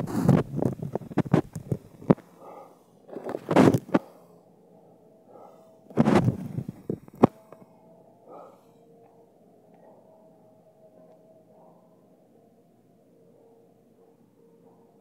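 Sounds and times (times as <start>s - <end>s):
wind buffeting microphone: 0.0s - 2.2s, 6.0s - 7.3s.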